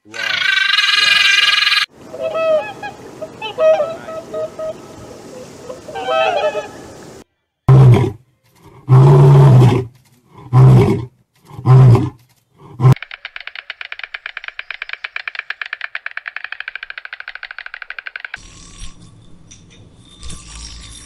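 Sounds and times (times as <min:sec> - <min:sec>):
lion roaring: 0:07.7 - 0:13.0
stork bill clattering: 0:11.3 - 0:21.0.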